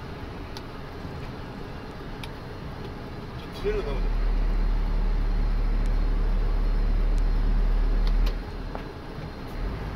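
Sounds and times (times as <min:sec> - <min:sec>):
vehicle rumble from inside cab: 0:00.0 - 0:09.9.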